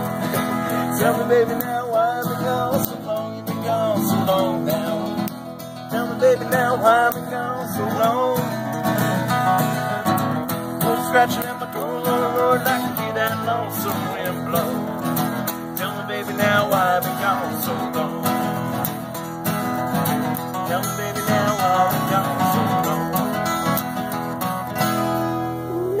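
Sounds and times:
acoustic guitars strumming: 0.0 - 26.0.

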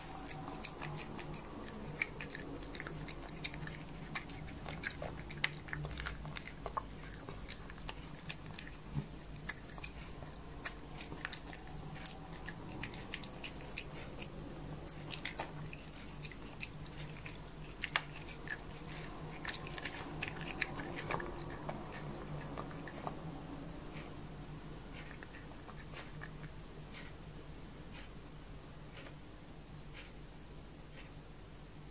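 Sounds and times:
cat chewing crunchy treat: 0.0 - 23.3, 25.0 - 26.5
low steady hum: 0.0 - 31.9.

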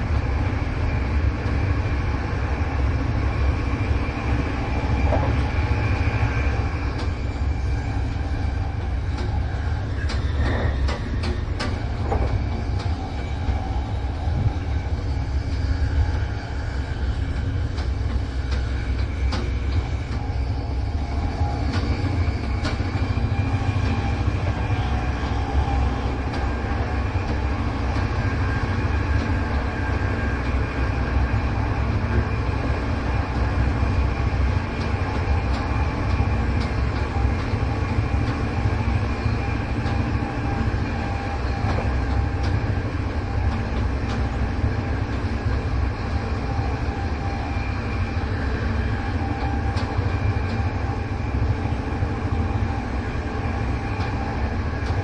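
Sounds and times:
train rumbling on rails: 0.0 - 55.0
train wheel clicks: 10.0 - 13.0, 17.7 - 20.2.

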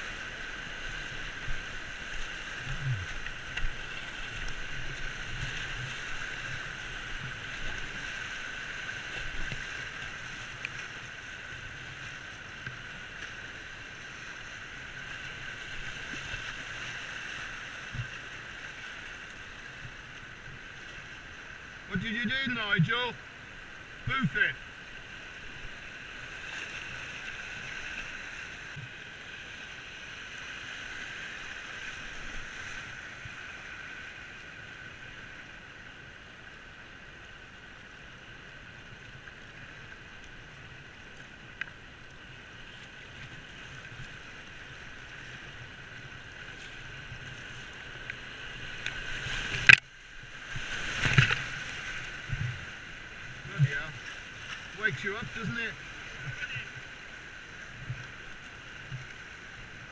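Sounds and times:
whitewater rushing: 44.4 - 59.9
kayak smacking water: 47.2 - 54.8.

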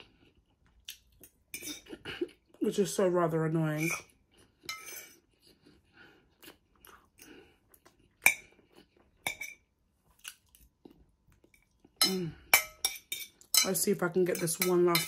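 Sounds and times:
soft chewing and mouth sounds: 0.0 - 2.6, 4.0 - 13.5
metal fork clinking against bowl: 9.2 - 9.6, 12.0 - 15.0.

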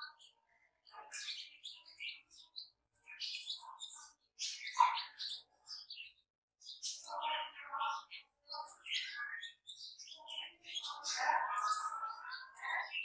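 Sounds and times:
chicks peeping: 0.9 - 6.0.

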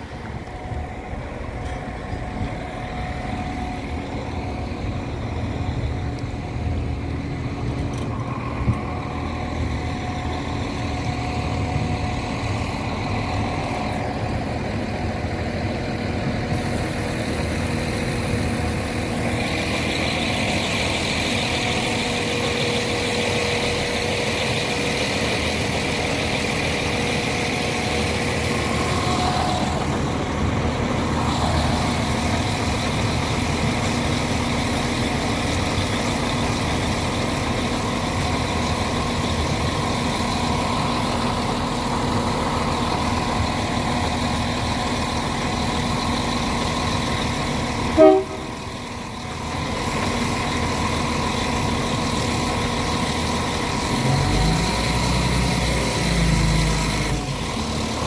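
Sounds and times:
high whining tones: 0.0 - 15.5
diesel train engine drone: 0.0 - 58.0.

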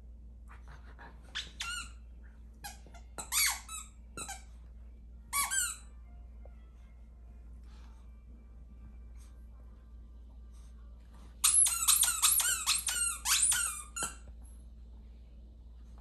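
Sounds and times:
plush toy squeaking: 1.4 - 2.0, 2.6 - 4.4, 11.4 - 14.2.

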